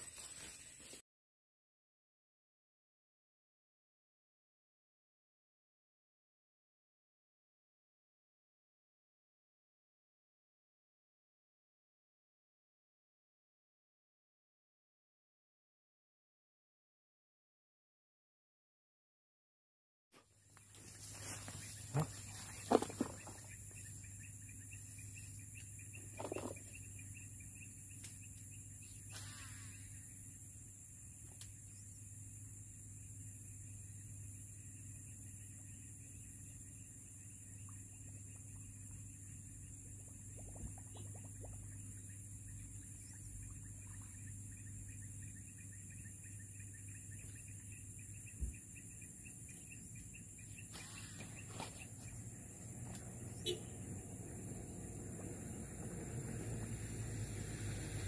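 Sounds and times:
insects chirring in grass: 0:00.0 - 0:01.0, 0:20.6 - 0:27.0, 0:27.6 - 0:55.6
rustle: 0:00.0 - 0:01.0, 0:20.6 - 0:24.0.

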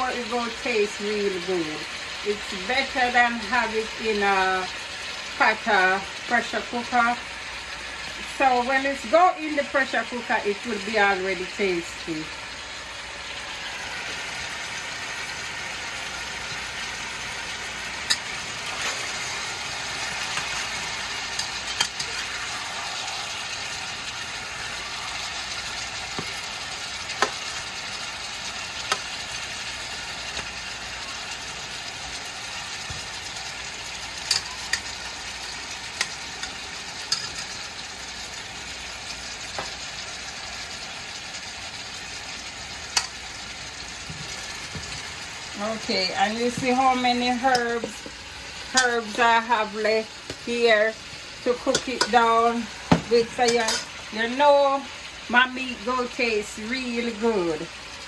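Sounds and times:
meat sizzling in a pan: 0:00.0 - 0:58.0
metal spatula clacking on pan: 0:34.3 - 0:34.9.

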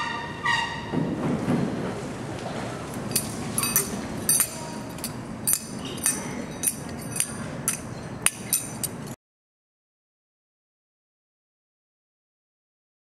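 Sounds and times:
low outdoor rumble: 0:01.0 - 0:09.2
light metallic clinks: 0:02.9 - 0:09.2.

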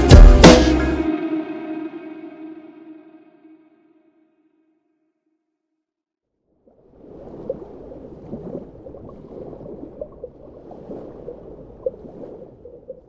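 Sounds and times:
underwater bubbles gurgling: 0:06.6 - 0:13.0.

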